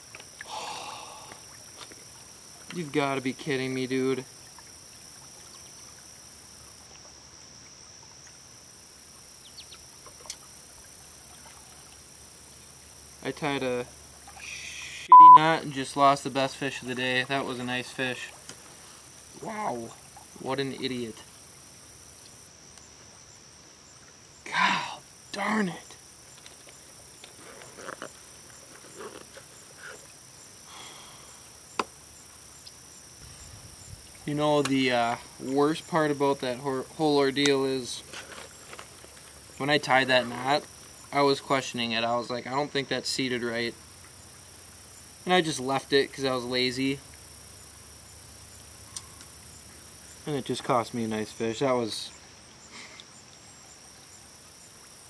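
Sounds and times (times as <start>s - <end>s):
faint ticks: 0.0s - 2.9s, 8.0s - 13.0s, 18.3s - 19.4s, 21.1s - 23.0s, 25.8s - 35.3s, 48.8s - 50.8s, 52.7s - 53.5s
grasshoppers buzzing: 0.0s - 6.9s, 24.4s - 42.3s
grasshoppers chirping: 0.0s - 55.0s.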